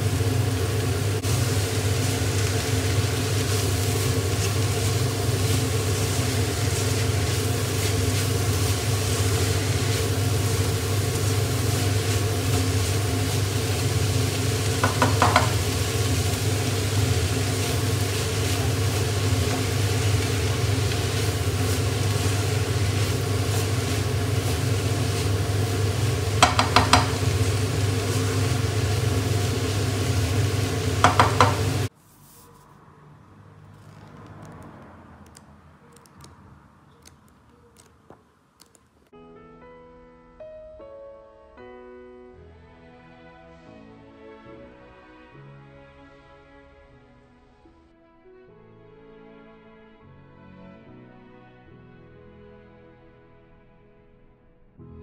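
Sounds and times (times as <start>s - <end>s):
vegetables sizzling in a wok: 0.0s - 31.9s
spatula scraping a pan: 14.8s - 15.6s, 26.4s - 27.2s, 31.0s - 32.5s.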